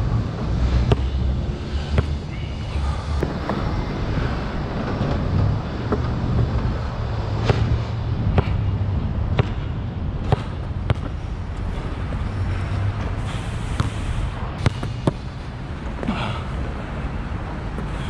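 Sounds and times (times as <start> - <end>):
low traffic rumble: 0.0 - 18.0
basketball bouncing on court: 0.8 - 1.2, 2.0 - 2.2, 8.3 - 8.6, 9.3 - 11.2.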